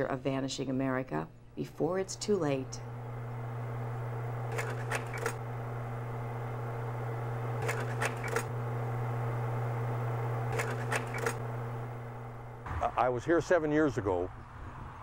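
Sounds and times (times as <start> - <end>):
slide projector hum: 1.6 - 13.0
projector mechanical clicks: 4.4 - 5.4, 7.6 - 8.5, 10.5 - 11.5.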